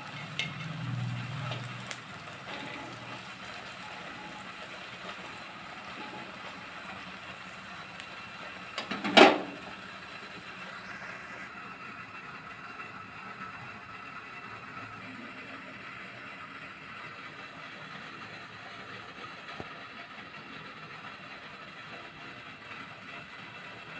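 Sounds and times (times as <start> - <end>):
bread sizzling in oil: 0.0 - 19.0.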